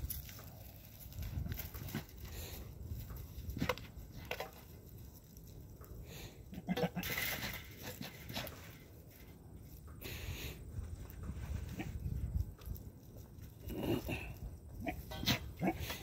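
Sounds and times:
goat bleating: 6.5s - 7.1s, 14.8s - 16.0s.

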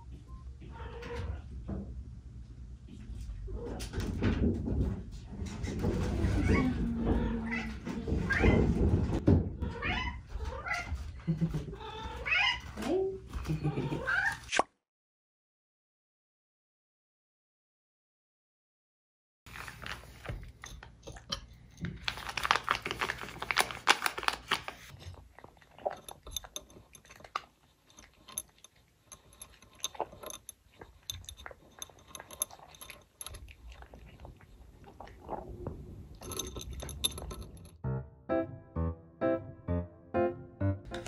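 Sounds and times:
cat chewing and crunching food: 19.5s - 37.8s
music: 37.8s - 41.0s.

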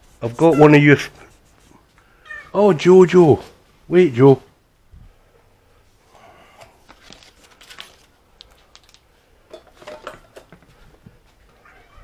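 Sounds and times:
bowls and dishes clattering: 9.5s - 10.6s.

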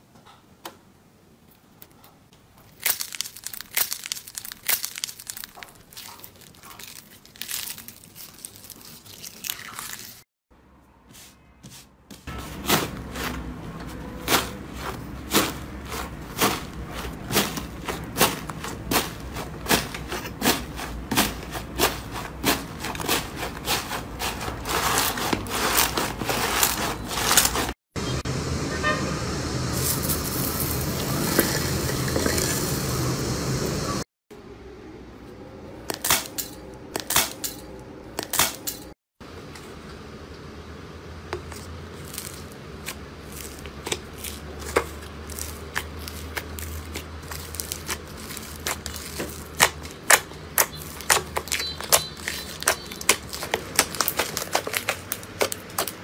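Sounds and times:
slime crackling when squeezed: 2.7s - 10.2s, 42.0s - 56.0s.

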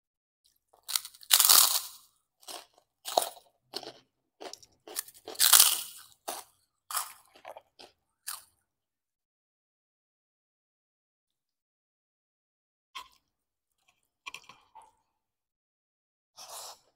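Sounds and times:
crunching of fried cracker: 0.5s - 8.6s.

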